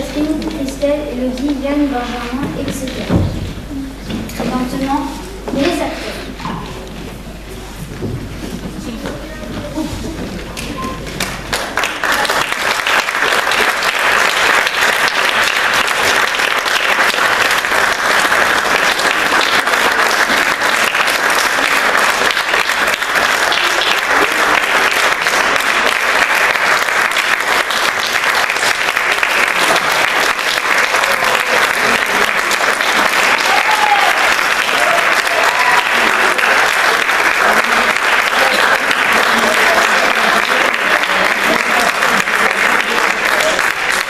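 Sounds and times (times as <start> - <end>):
audience applauding: 10.1 - 44.0.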